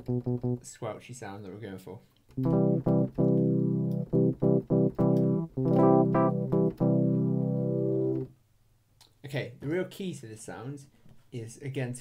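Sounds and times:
squelchy synth notes: 2.4s - 8.3s.

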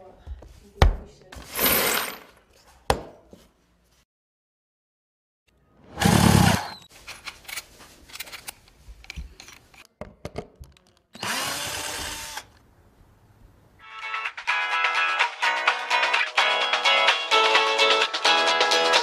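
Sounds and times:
cordless drill running: 11.2s - 12.6s.

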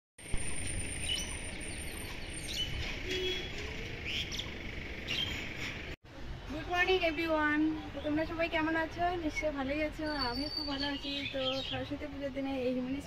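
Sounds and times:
birds chirping: 0.4s - 6.0s, 9.9s - 12.2s.

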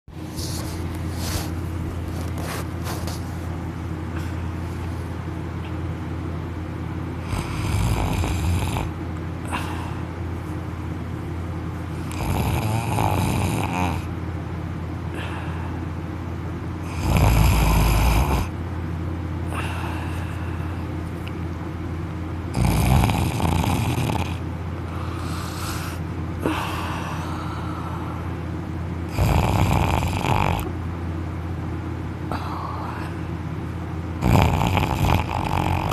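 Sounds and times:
steady low hum: 0.0s - 35.9s
man snoring loudly: 7.2s - 9.6s, 12.1s - 14.1s, 16.8s - 18.5s, 22.5s - 24.4s, 29.1s - 30.7s, 34.2s - 35.9s.

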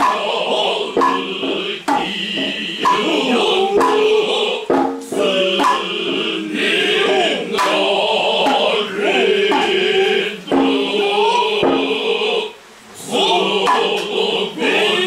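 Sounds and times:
hand drum strikes: 0.0s - 12.2s, 13.6s - 14.2s
male voices chanting in chorus: 0.0s - 15.0s.

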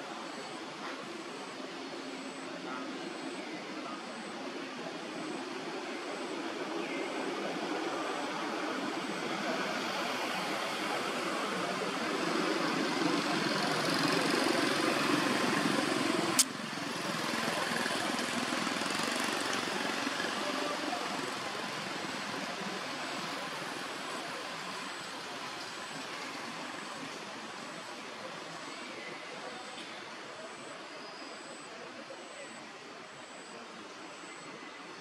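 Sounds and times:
outdoor hiss and rumble: 0.0s - 35.0s
sharp click: 16.4s - 16.6s.

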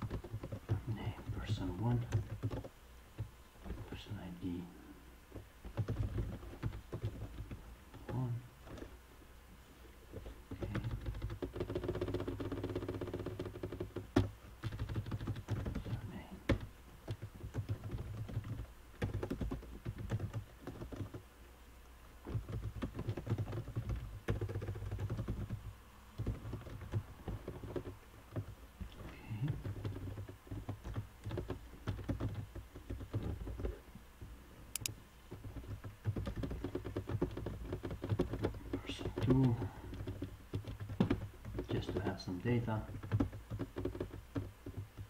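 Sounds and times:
typing on computer keyboard: 0.0s - 2.7s, 5.7s - 8.9s, 10.5s - 21.2s, 22.3s - 33.8s, 34.8s - 45.0s.

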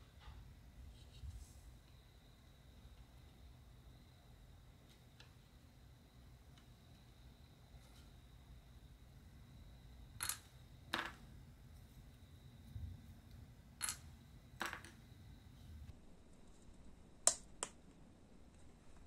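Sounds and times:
small parts clicking on a mat: 13.8s - 15.0s.

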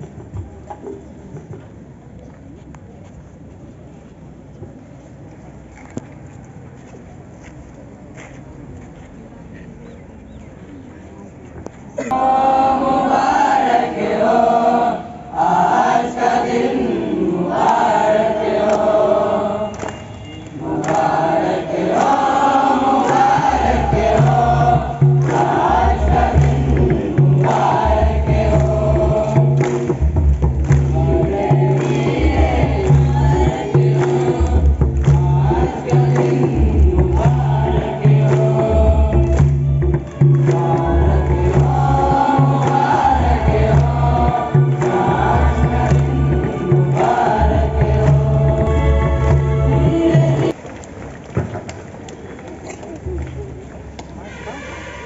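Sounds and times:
group singing in chorus: 12.0s - 50.6s
low bass beat: 23.3s - 50.5s.

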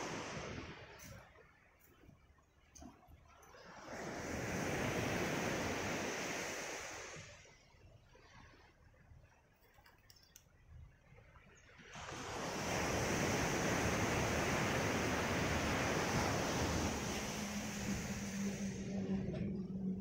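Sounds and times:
surf on gravel beach: 0.0s - 1.9s, 3.6s - 7.7s, 11.8s - 19.2s
steady low hum: 14.5s - 20.0s.

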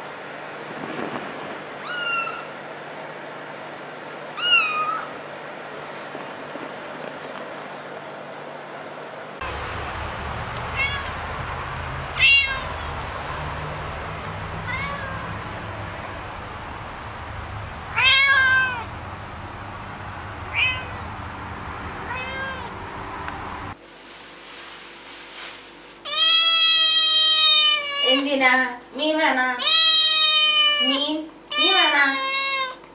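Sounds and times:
cat meowing: 1.8s - 2.5s, 4.4s - 5.1s, 9.5s - 21.4s, 22.0s - 23.3s, 26.1s - 28.2s, 29.6s - 32.8s
steady low hum: 9.4s - 23.8s.

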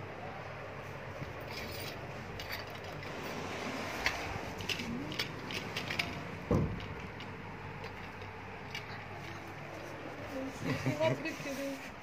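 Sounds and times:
loud thump: 6.5s - 6.8s.

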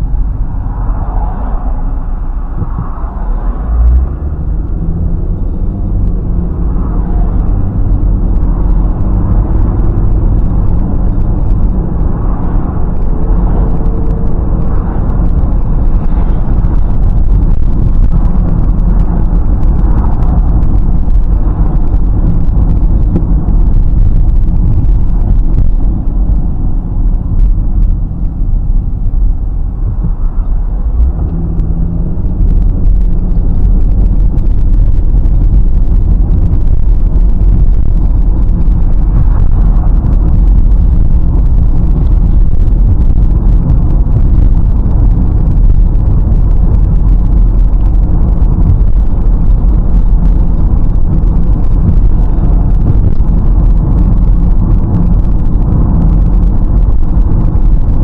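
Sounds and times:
tyre and road noise: 0.0s - 58.0s.

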